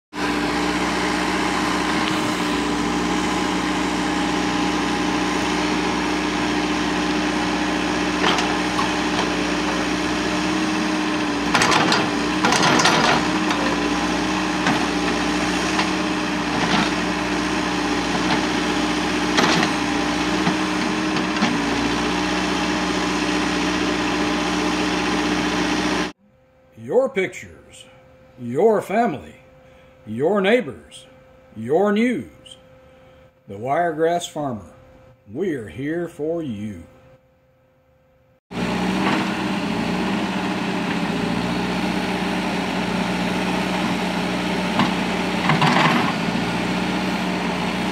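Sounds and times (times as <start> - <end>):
diesel engine running: 0.1 - 26.2, 38.5 - 47.9.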